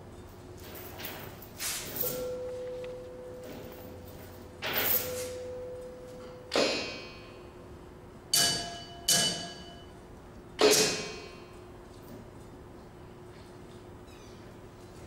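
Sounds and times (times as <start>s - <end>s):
sharp strikes on ringing objects: 8.3s - 9.9s.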